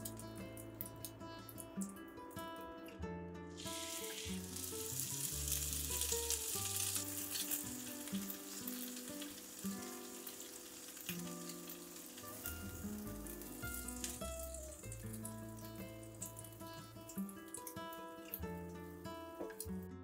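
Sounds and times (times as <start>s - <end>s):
bread sizzling in butter: 3.6s - 18.4s.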